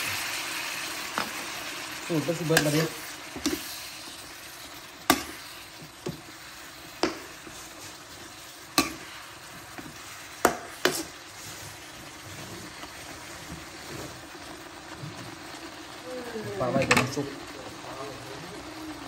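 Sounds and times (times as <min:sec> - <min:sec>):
food sizzling in a wok: 0:00.0 - 0:19.0.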